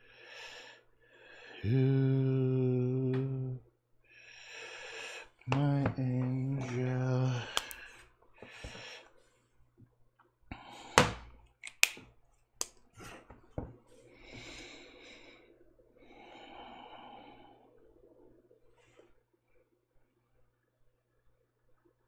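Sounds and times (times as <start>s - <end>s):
soft breaths: 0.0s - 2.9s, 4.0s - 9.8s, 12.8s - 20.2s
marker being uncapped: 11.6s - 12.0s.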